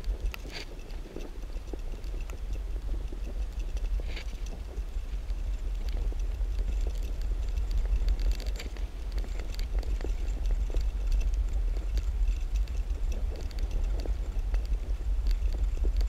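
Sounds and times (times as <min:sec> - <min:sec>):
bicycle tyre noise: 0:00.0 - 0:16.0
bike clicks and rattles: 0:00.0 - 0:16.0
wind rumble on microphone: 0:00.0 - 0:16.0.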